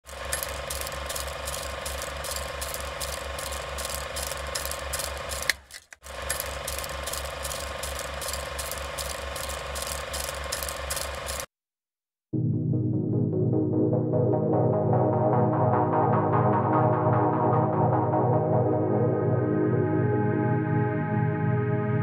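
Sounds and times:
mechanical ticking: 0.1 - 11.5.

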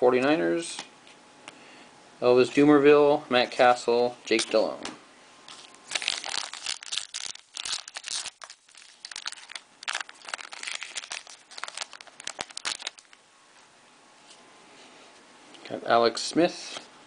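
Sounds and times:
foil wrapper crackling: 5.8 - 13.2.

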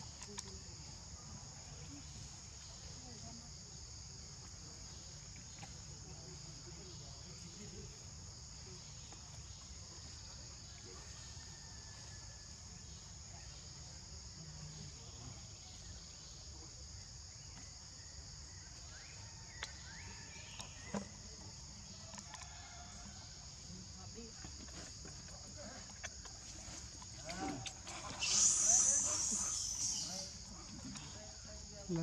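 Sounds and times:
insects droning: 0.0 - 32.0.

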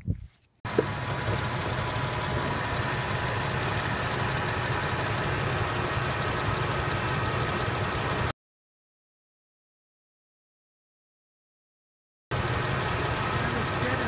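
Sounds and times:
car engine idling: 0.7 - 8.3, 12.3 - 14.0.

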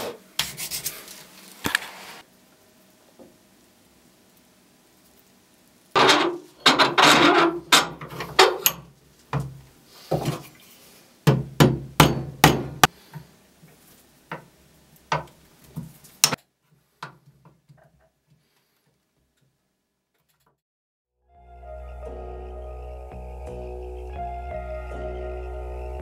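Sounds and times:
hammer striking metal: 11.6 - 12.9.

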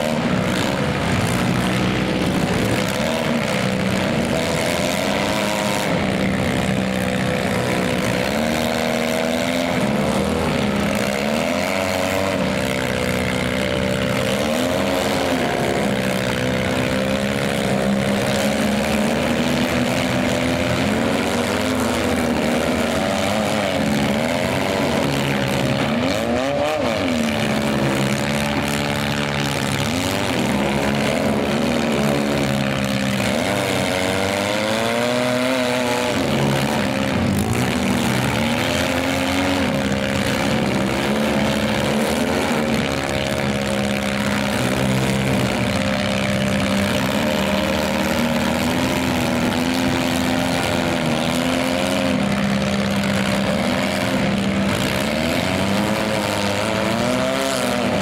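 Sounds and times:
car engines revving: 0.0 - 58.0.

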